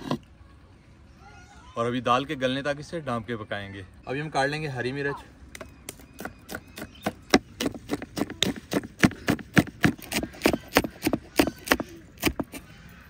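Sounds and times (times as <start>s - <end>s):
knife chopping chillies: 6.2s - 12.6s.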